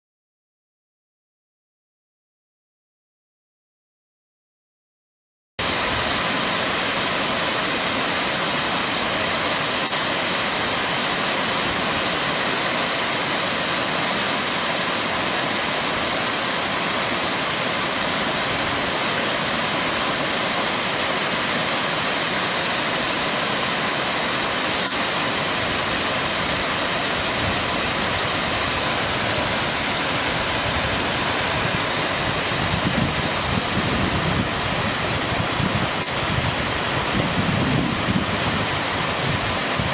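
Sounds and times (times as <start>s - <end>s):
waterfall rushing: 5.6s - 39.9s
wind gusts on microphone: 24.8s - 39.9s.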